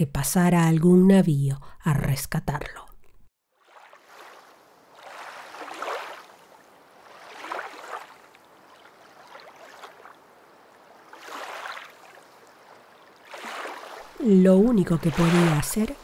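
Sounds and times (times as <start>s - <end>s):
sloshing rushing water: 3.5s - 16.0s.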